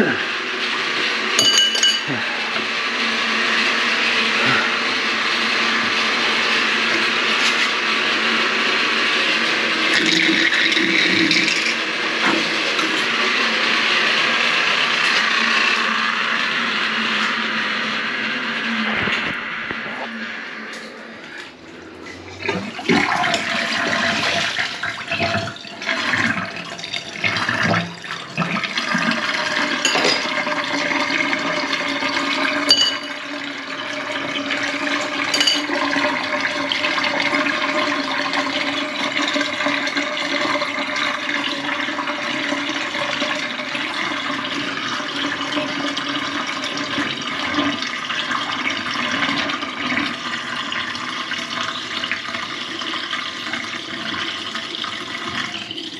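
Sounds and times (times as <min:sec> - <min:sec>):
water rushing into sink: 0:00.0 - 0:55.9.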